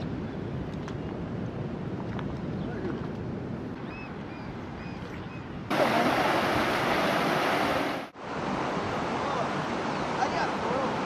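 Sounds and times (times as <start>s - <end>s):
river rushing over rocks: 5.7s - 11.0s.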